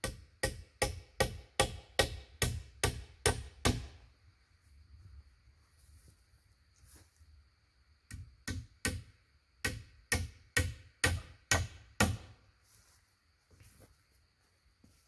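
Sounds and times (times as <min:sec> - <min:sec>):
hammer striking log wall: 0:00.0 - 0:04.0, 0:08.1 - 0:12.4.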